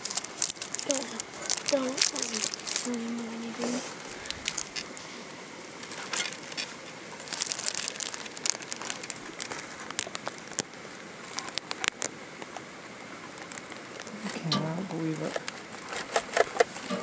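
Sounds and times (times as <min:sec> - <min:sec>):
plastic bag crinkling and rustling: 0:00.0 - 0:05.0, 0:05.8 - 0:12.1, 0:15.1 - 0:17.0.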